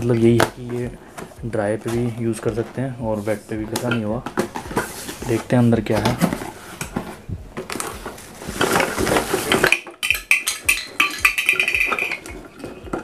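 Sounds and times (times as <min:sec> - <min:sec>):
packaging crinkling and rustling: 0:00.0 - 0:10.1.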